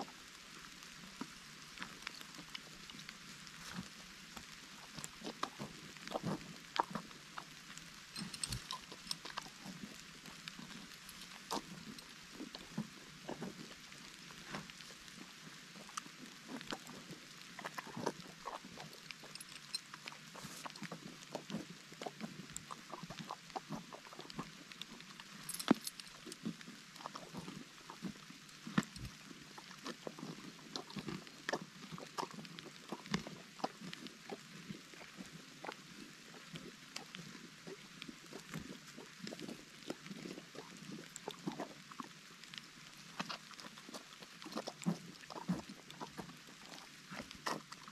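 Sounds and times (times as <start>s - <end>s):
light rain hiss: 0.0s - 47.9s
donkey chewing: 4.9s - 13.6s, 17.6s - 24.4s, 43.2s - 47.9s.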